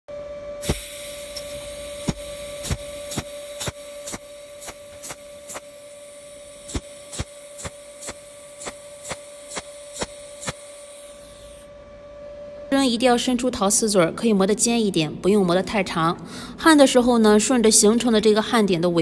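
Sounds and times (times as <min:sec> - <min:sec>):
welding machine hum and hiss: 0:00.1 - 0:12.2
spot welder ticking: 0:00.6 - 0:11.6.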